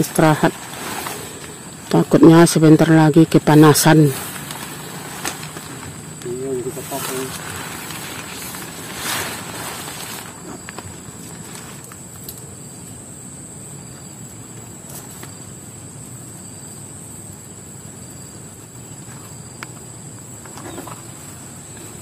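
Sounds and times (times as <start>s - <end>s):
tarp clicks and rustles: 0.0s - 2.1s, 3.5s - 12.4s
high insect drone: 0.0s - 22.0s.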